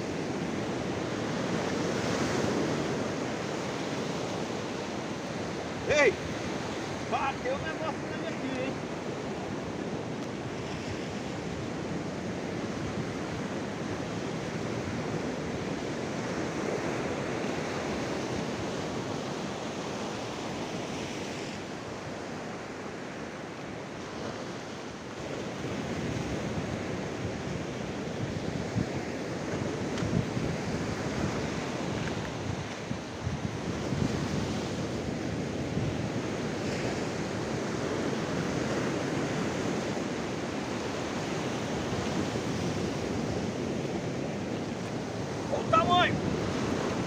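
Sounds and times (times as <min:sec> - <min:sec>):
surf washing over rocks: 0:00.0 - 0:47.0.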